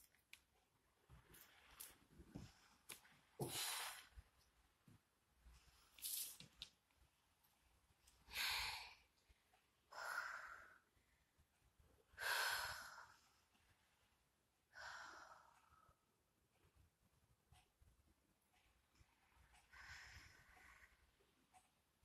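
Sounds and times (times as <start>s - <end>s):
woman breathing deeply: 8.3s - 9.1s, 9.9s - 10.9s, 12.2s - 13.4s, 14.7s - 16.0s, 19.7s - 21.2s.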